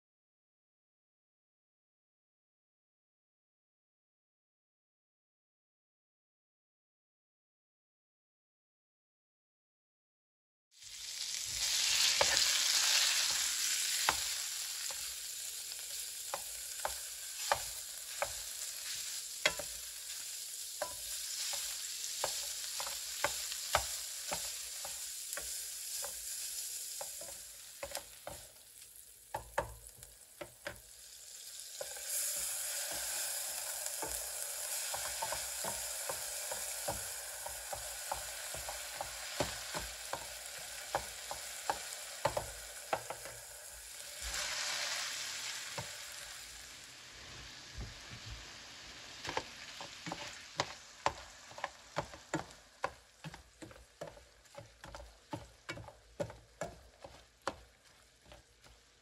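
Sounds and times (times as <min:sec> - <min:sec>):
food sizzling in a pan: 0:10.7 - 0:59.0
utensil clicking in a pan: 0:11.8 - 0:43.6, 0:49.2 - 0:58.8.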